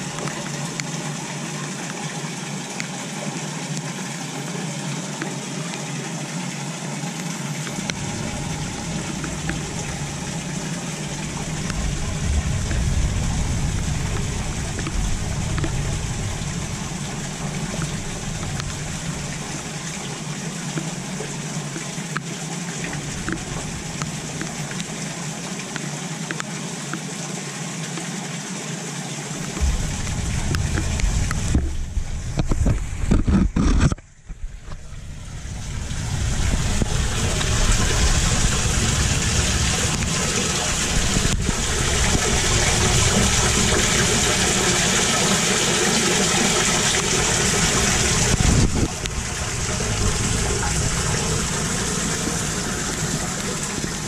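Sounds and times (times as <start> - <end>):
low outdoor rumble: 0.0 - 26.5, 29.3 - 54.0
rainwater running into drain: 0.0 - 54.0
low buffeting bumps: 7.7 - 21.4, 22.9 - 25.0, 29.4 - 54.0.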